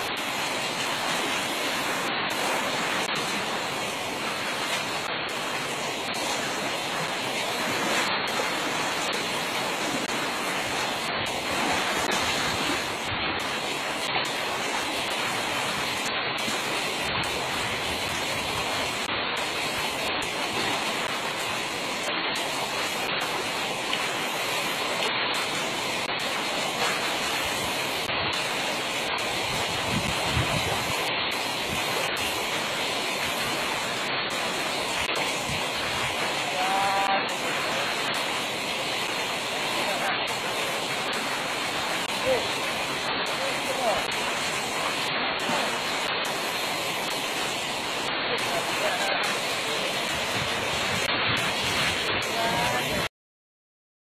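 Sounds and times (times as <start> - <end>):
stream water rushing: 0.0 - 53.1.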